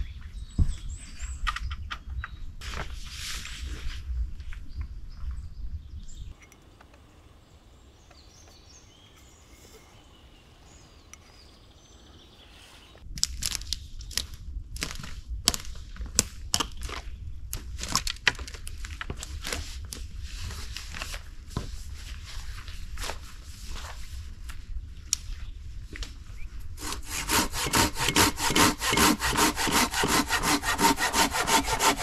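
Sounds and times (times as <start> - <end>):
wind rumble on microphone: 0.0 - 6.4, 13.0 - 26.8.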